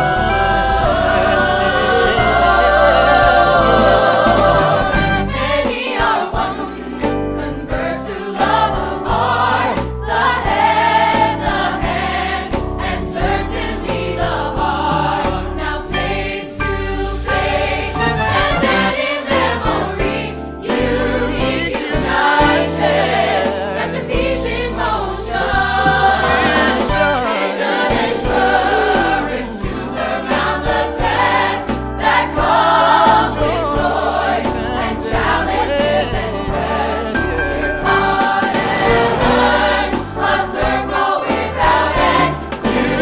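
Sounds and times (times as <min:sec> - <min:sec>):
mixed choir singing: 0:00.0 - 0:43.0
sustained low bass notes: 0:20.9 - 0:27.5, 0:32.4 - 0:40.2.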